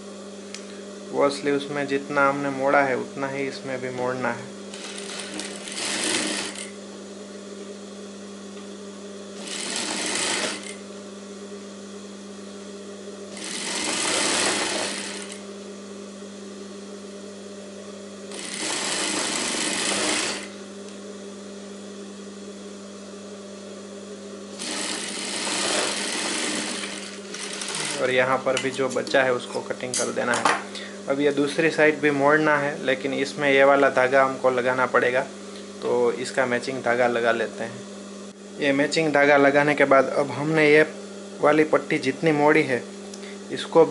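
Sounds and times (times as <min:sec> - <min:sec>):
motor humming: 0:00.0 - 0:43.9
sewing machine stitching: 0:04.7 - 0:06.7, 0:09.4 - 0:10.8, 0:13.3 - 0:15.4, 0:18.3 - 0:20.5, 0:24.6 - 0:28.1.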